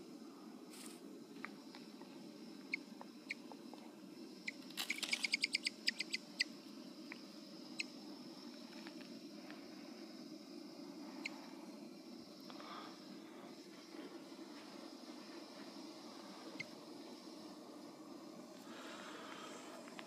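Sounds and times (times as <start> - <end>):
quail alarm chirps: 4.4 - 6.5.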